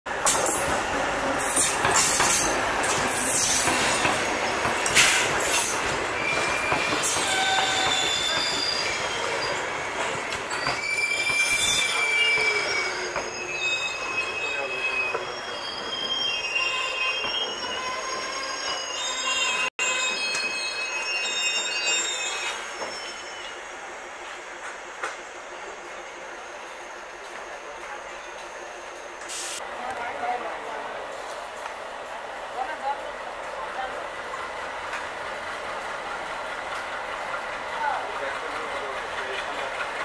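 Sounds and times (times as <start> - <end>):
train wheels squealing on rails: 0.2 - 29.6, 34.3 - 40.0
train rumble: 27.2 - 40.0.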